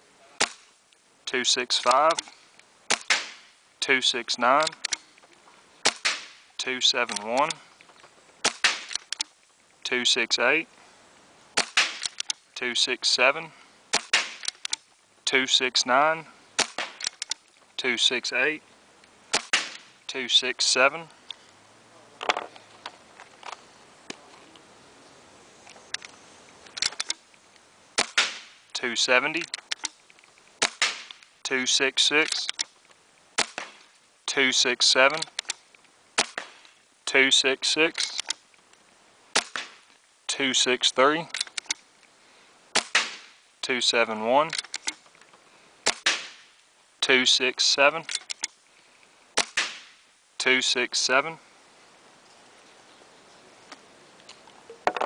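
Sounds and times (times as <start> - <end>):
paintball marker pops: 5.8 - 6.4, 8.4 - 9.2, 13.9 - 14.7, 19.3 - 19.9, 28.0 - 28.6, 30.6 - 31.2, 33.4 - 33.8, 49.4 - 49.9
quick clicks: 11.6 - 12.4, 32.2 - 32.7.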